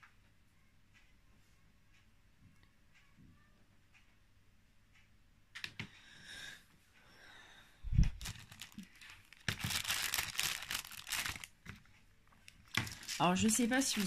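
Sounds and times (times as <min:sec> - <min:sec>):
crinkling and rustling of materials: 0:07.9 - 0:14.0.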